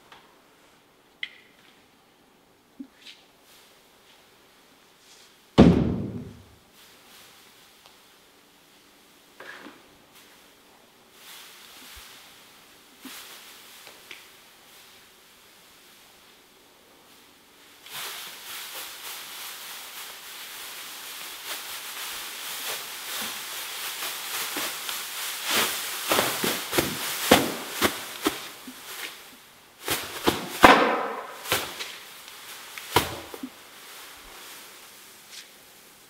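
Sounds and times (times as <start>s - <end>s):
plastic sheeting rustling: 3.0s - 36.0s.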